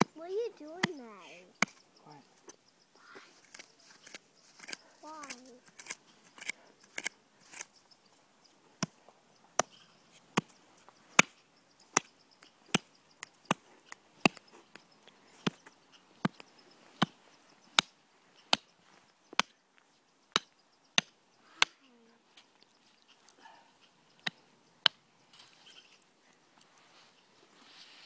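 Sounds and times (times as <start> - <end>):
hatchet chopping into snow: 11.2 - 11.4.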